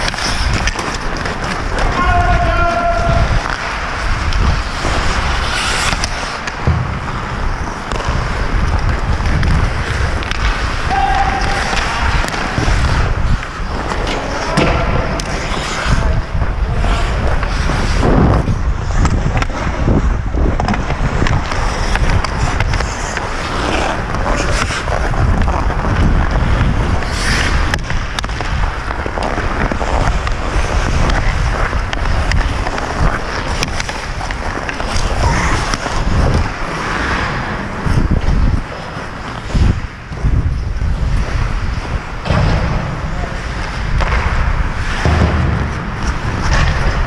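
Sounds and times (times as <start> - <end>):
hockey stick knocking puck: 0.0 - 15.9, 20.5 - 37.2
skates scraping on ice: 0.0 - 47.0.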